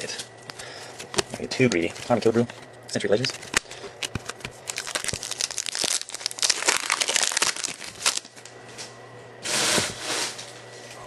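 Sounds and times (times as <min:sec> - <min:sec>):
cards being handled: 0:01.0 - 0:08.4
foil wrapper crinkling: 0:01.1 - 0:08.5.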